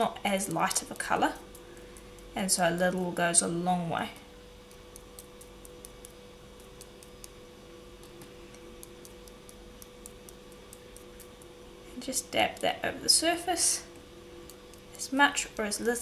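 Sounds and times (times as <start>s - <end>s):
faint steady hum: 0.0s - 16.0s
toothbrush ticking on bead: 0.5s - 2.4s, 4.6s - 11.6s, 12.2s - 12.8s, 14.4s - 16.0s.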